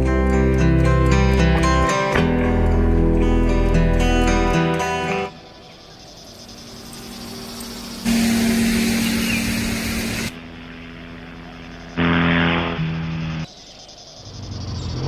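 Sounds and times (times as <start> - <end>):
bicycle road noise: 0.0 - 15.0
steady low hum: 5.8 - 14.8.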